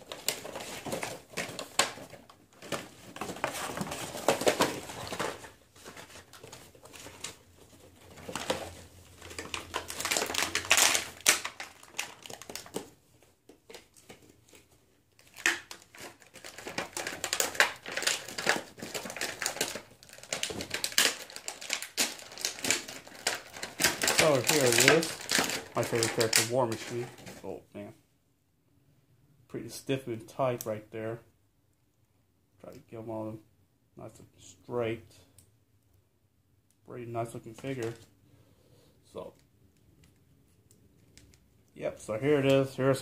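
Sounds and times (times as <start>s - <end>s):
packaging crinkling and rustling: 0.0s - 27.5s, 37.3s - 38.1s.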